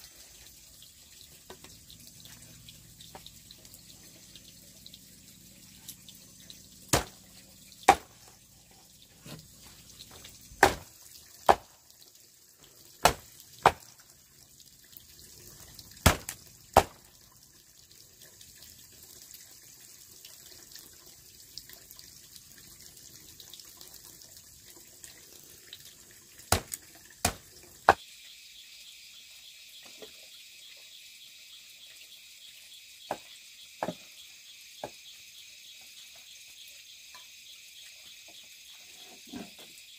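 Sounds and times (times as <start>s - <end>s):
faint steady hiss: 0.0s - 18.0s.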